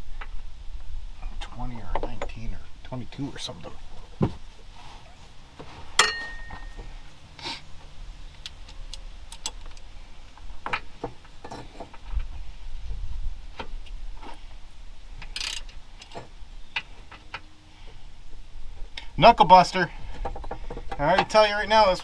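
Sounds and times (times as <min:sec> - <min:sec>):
metal tools clinking: 0:06.0 - 0:06.8, 0:11.4 - 0:11.9.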